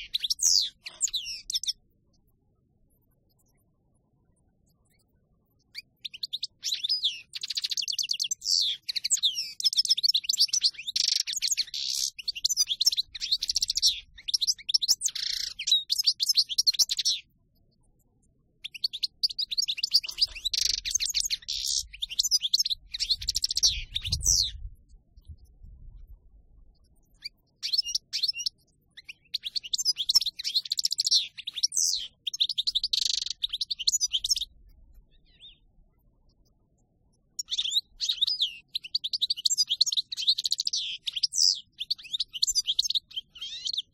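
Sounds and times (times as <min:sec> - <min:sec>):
goldfinch twittering and trilling: 0:00.0 - 0:01.8, 0:05.6 - 0:17.3, 0:18.6 - 0:25.4, 0:26.8 - 0:35.7, 0:37.3 - 0:43.9
faint low rumble: 0:22.8 - 0:27.2.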